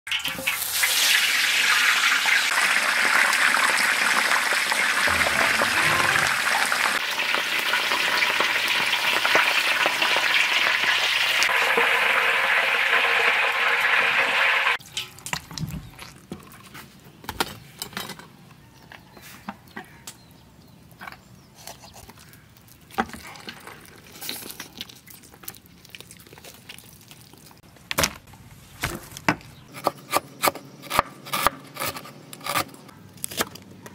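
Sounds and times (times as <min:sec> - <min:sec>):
oil sizzling in a wok: 0:00.1 - 0:05.3, 0:06.7 - 0:15.2.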